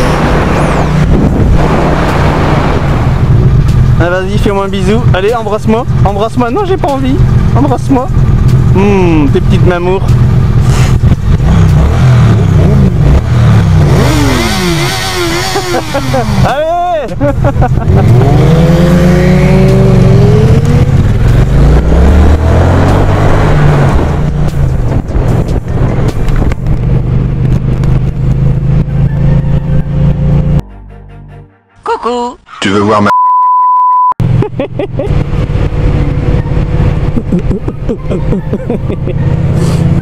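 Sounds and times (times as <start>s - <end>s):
wind noise: 0.0s - 6.1s, 17.1s - 30.4s
motorcycle engine accelerating: 0.0s - 30.6s, 34.2s - 40.0s
motorcycle engine running: 23.9s - 30.6s, 34.2s - 40.0s.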